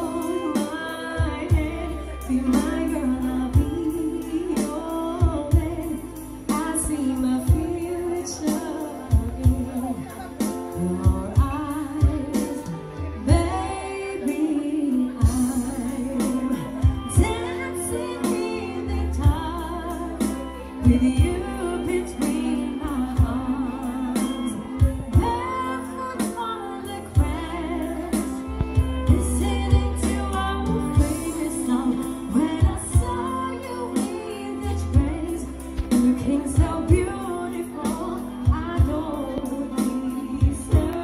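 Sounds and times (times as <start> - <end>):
steady beat and bass: 0.0 - 13.7, 15.2 - 41.0
woman singing into microphone: 0.0 - 41.0.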